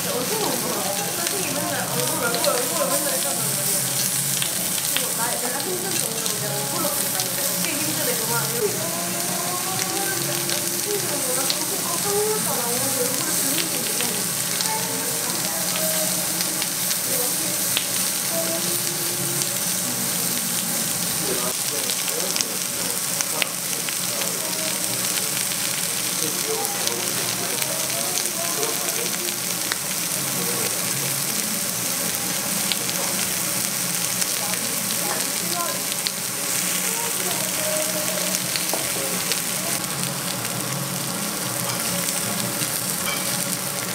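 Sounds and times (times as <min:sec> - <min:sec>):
meat sizzling on a grill pan: 0:00.0 - 0:43.9
sharp pops of frying: 0:01.0 - 0:08.0, 0:17.6 - 0:18.2, 0:38.0 - 0:43.9.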